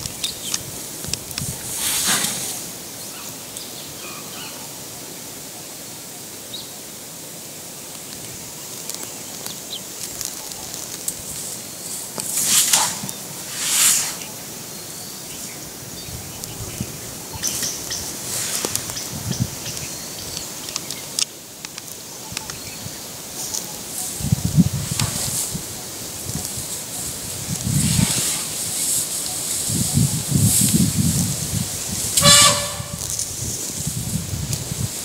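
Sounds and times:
rustling grass and leaves: 0.0s - 35.0s
steady high hiss: 0.0s - 35.0s.

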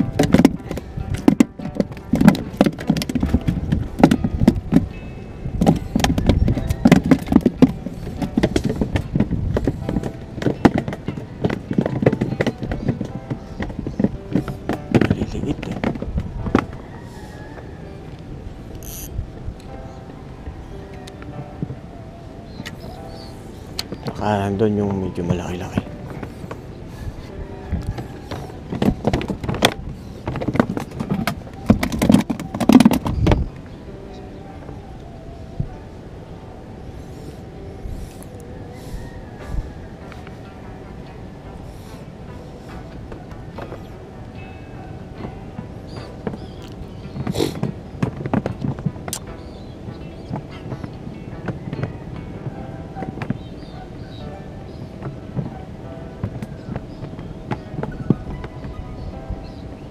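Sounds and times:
plastic cooler knocks and rattles: 0.0s - 4.9s.

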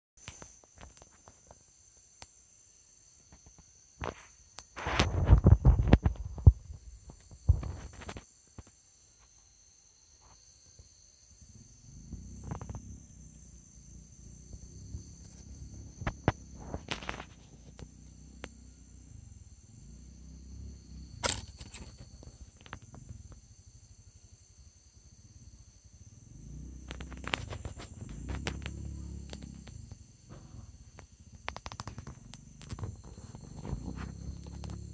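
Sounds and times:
crickets and katydids chirping: 0.2s - 34.9s
sharp knocks and clicks: 30.9s - 34.9s.

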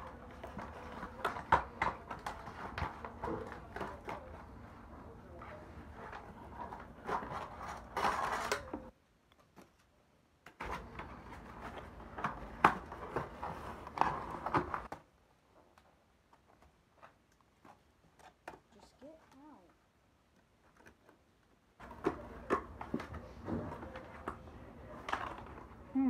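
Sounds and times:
toy packaging rustling: 0.0s - 9.9s, 10.5s - 26.0s.

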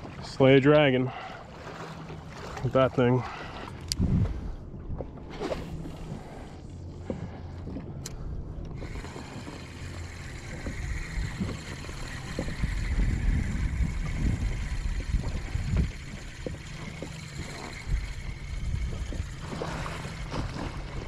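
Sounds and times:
water slapping against hull: 0.0s - 21.0s
low wind buffeting: 2.9s - 21.0s
wind on microphone: 3.8s - 6.3s, 8.8s - 21.0s.

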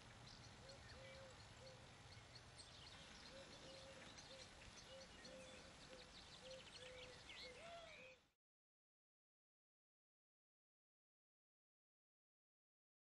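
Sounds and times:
birds chirping and trilling: 0.0s - 8.3s.

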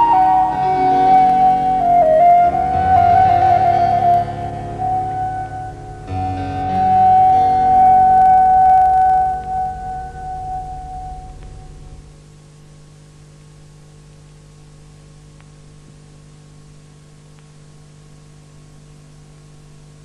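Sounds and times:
sustained musical tone: 0.0s - 12.2s
electrical hum and hiss: 0.0s - 20.0s.

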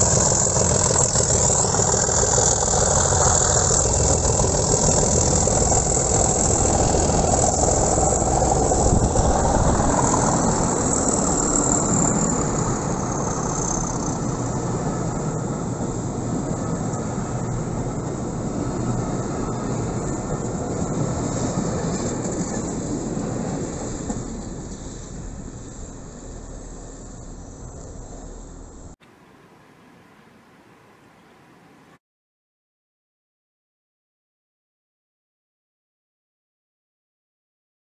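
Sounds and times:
train coaches rolling on rails: 0.0s - 29.0s.

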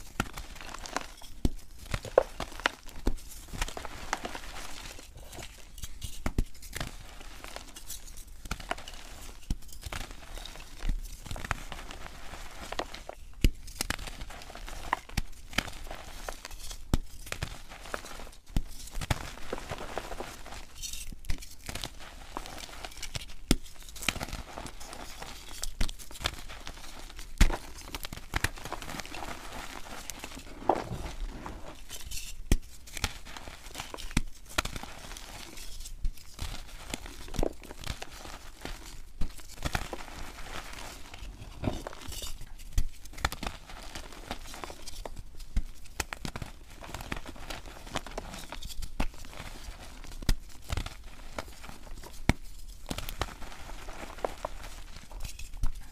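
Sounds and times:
chalk crumbling: 24.4s - 46.1s.

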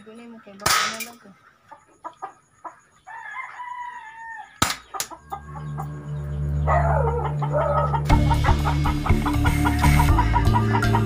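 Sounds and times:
loud sharp crack: 0.6s - 1.1s
rooster crowing: 3.0s - 11.0s.

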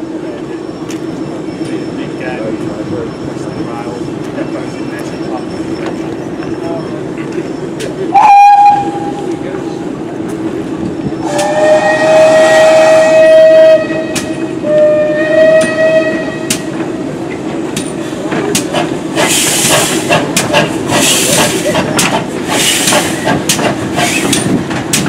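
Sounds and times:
steam locomotive moving slowly: 0.0s - 25.0s
locomotive whistle blasts: 8.1s - 9.3s, 11.2s - 16.7s
steam hiss: 19.2s - 20.2s, 22.4s - 23.3s.

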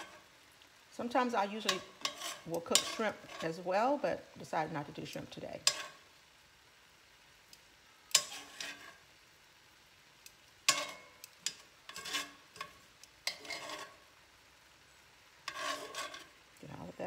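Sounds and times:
metal tongs scraping a skillet: 0.0s - 0.3s, 1.0s - 4.0s, 5.0s - 6.1s, 8.1s - 9.1s, 10.2s - 14.2s, 15.4s - 17.0s
faint sizzle of pan juices: 0.0s - 17.0s.

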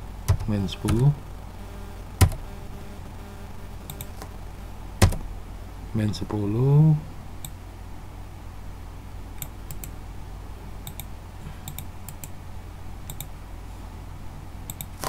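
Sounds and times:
low steady hum: 0.0s - 15.0s
keyboard keystroke clicks: 5.0s - 5.2s, 10.8s - 11.1s, 13.1s - 13.3s.

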